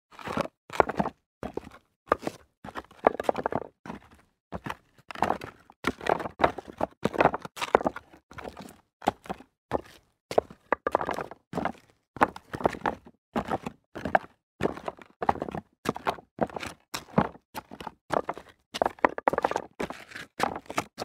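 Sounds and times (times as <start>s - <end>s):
footsteps crunching on loose rock: 9.7s - 11.7s.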